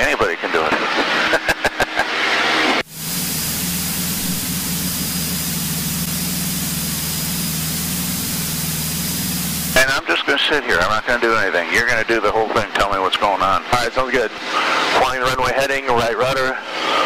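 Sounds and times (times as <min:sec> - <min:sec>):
propeller plane engine drone: 0:00.0 - 0:09.9.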